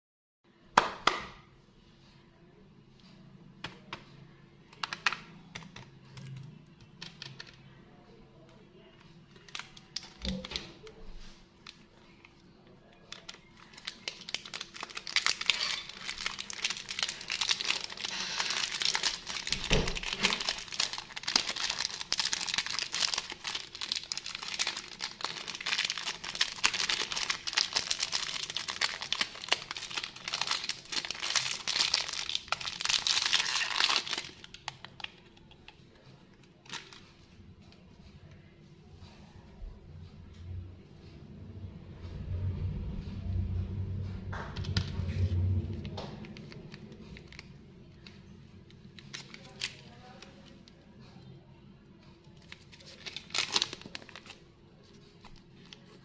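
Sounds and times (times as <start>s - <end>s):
plastic wrapper crinkling: 9.3s - 37.3s, 45.8s - 48.2s, 48.9s - 50.5s, 52.3s - 56.0s
wrapper rustles and taps: 13.1s - 35.8s.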